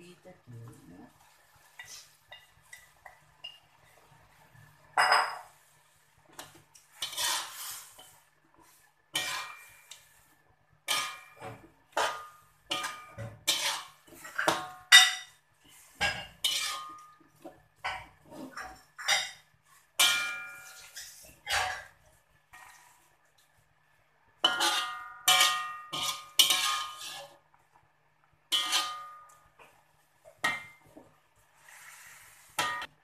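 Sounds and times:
metal spatula scraping a wok: 0:06.4 - 0:10.2, 0:10.9 - 0:23.1, 0:24.4 - 0:27.4, 0:28.5 - 0:29.4, 0:31.6 - 0:33.0.

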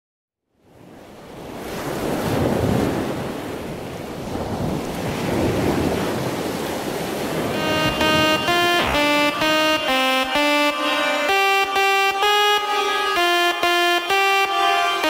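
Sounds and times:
ocean surf: 0:01.3 - 0:15.0
synthesizer melody of short notes: 0:07.4 - 0:15.0.

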